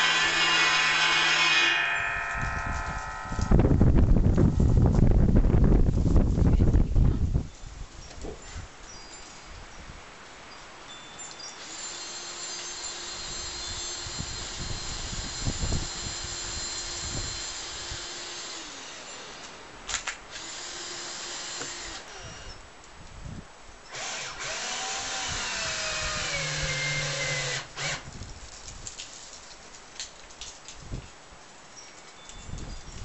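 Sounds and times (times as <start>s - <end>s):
power drill running: 11.6s - 19.5s, 20.3s - 22.6s, 23.9s - 28.0s.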